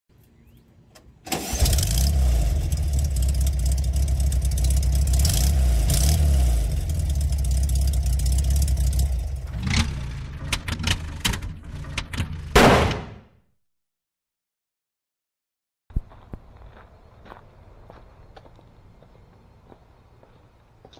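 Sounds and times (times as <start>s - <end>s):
car engine rumbling: 0.8s - 12.8s.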